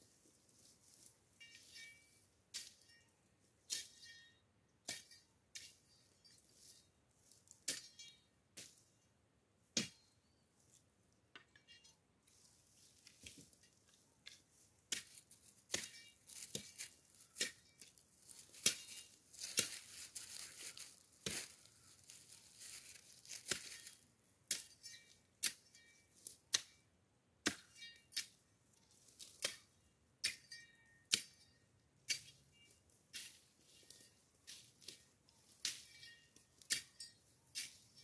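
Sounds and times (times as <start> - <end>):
rustling: 0.0 - 3.0, 12.2 - 24.0
dry vegetation crackling and tearing: 15.0 - 24.0.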